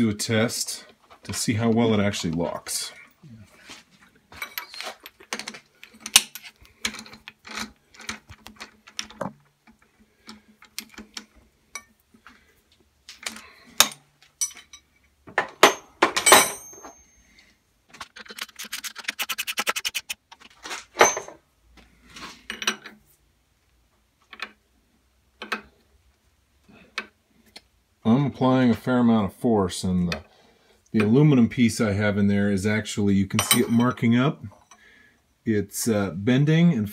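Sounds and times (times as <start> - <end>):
metal clinks and clanks: 4.3 - 8.7, 13.8 - 14.9, 15.6 - 17.3, 21.0 - 21.4
rapid clicks: 18.1 - 20.2.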